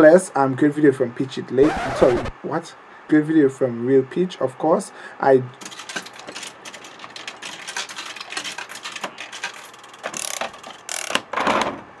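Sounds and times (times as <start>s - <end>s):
quick clicks and rattles: 5.6s - 11.6s.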